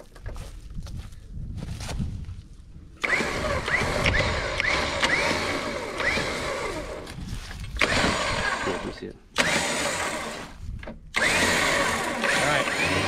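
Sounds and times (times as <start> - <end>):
electric winch motor whine: 3.0 - 7.2, 7.8 - 13.0.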